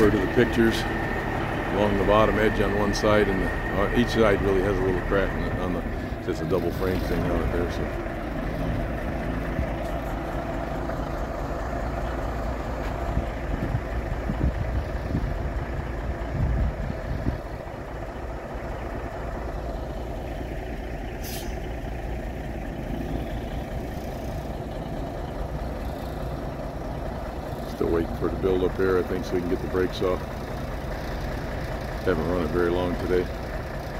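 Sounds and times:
diesel truck engine idling: 0.0 - 33.9
short high air hiss: 21.2 - 21.6.

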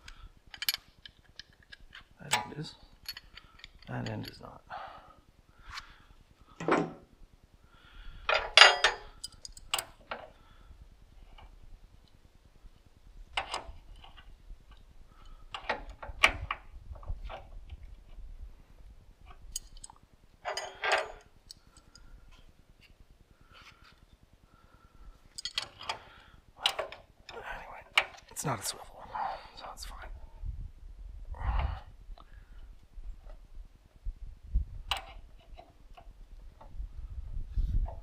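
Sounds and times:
metal fittings and tools clinking: 8.3 - 10.2, 19.5 - 22.0, 25.3 - 26.0.

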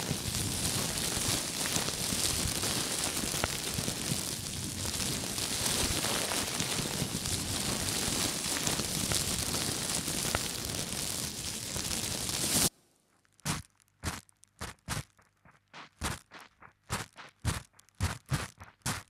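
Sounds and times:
fabric rustling and billowing: 0.0 - 12.7
fabric crinkling against microphone: 0.0 - 15.6.

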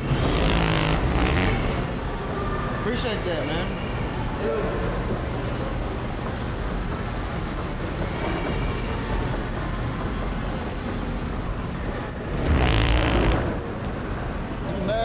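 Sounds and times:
mall ambience hum: 0.0 - 15.0
wet prank fart noise: 0.2 - 1.8, 12.4 - 13.6.

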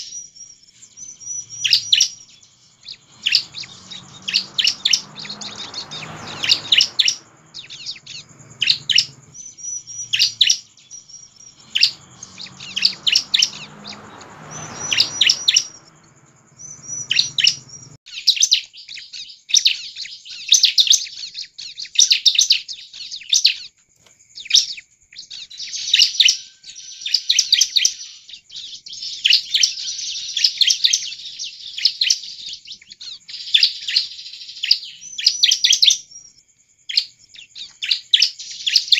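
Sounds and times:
bird whistled notes: 0.0 - 18.0
bird chirps and trills: 0.0 - 23.8, 24.4 - 38.9.

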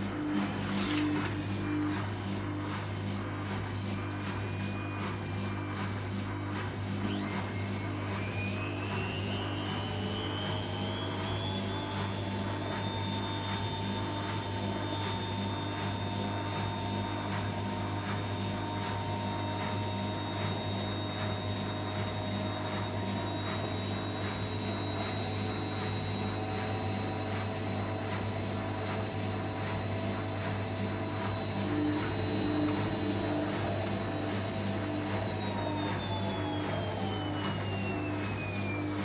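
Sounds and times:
drain pump humming: 0.0 - 39.0
washing machine motor whine: 0.0 - 39.0
regular pulsing: 8.4 - 39.0.

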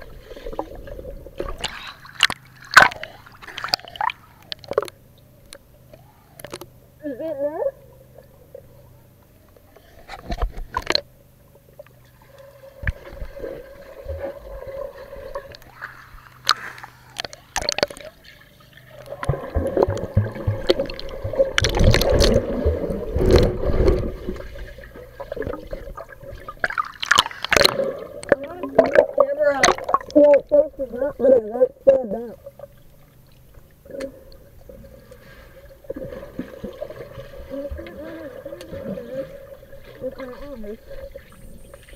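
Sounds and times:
bubbling: 11.6 - 31.2
water gurgling underwater: 12.2 - 16.3, 17.1 - 32.8, 33.8 - 41.9.

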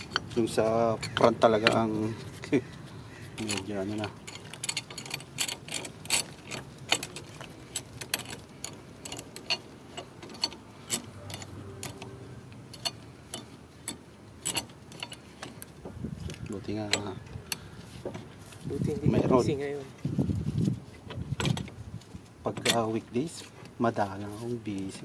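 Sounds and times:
metallic clicks and clinks: 3.4 - 15.7, 16.7 - 17.2.

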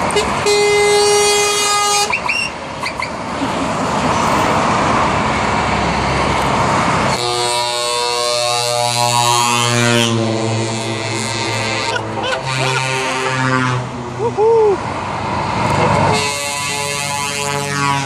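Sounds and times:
traffic rushing past: 0.0 - 18.0
truck air horn: 0.1 - 3.0, 7.1 - 14.0, 16.0 - 18.0
chord of horn tones: 7.1 - 14.0.

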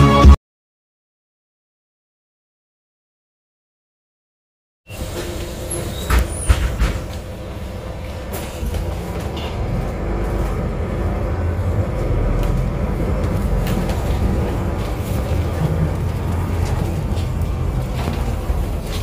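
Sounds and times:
bus engine and road rumble: 4.9 - 19.0.

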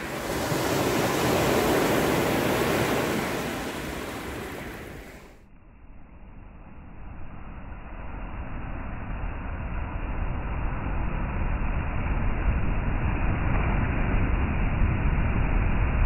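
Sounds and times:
waves washing on pebble beach: 0.0 - 5.3.

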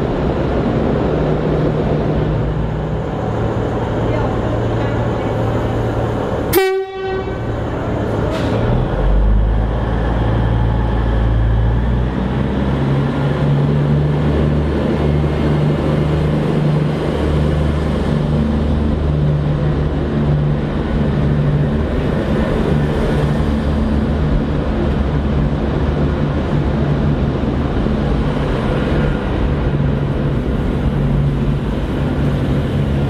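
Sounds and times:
diesel engines droning: 0.0 - 33.0
train horn toot: 6.5 - 7.6.

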